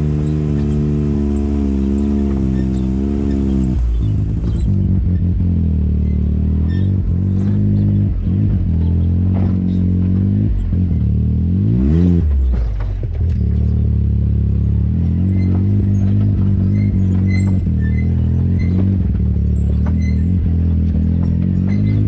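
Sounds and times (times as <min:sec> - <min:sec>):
atv engine running: 0:00.0 - 0:22.0.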